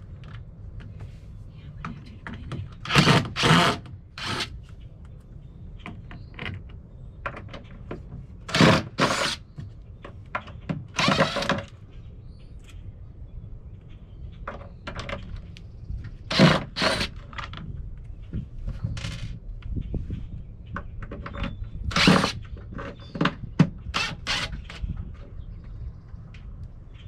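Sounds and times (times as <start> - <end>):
cordless driver whirring: 2.8 - 4.5, 11.0 - 11.6, 16.3 - 17.2, 21.9 - 22.4, 23.9 - 24.8.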